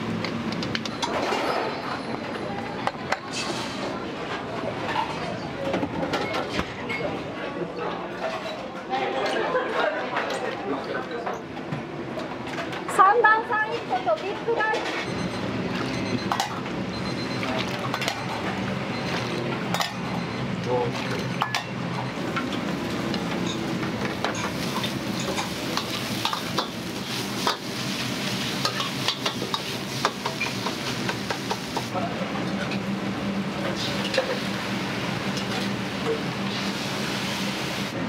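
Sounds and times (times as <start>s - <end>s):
food sizzling in a wok: 24.3s - 31.9s, 33.7s - 38.0s.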